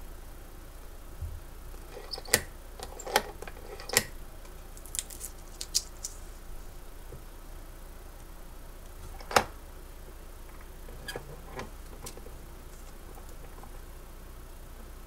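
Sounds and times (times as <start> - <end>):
paper rustling: 4.8 - 6.4.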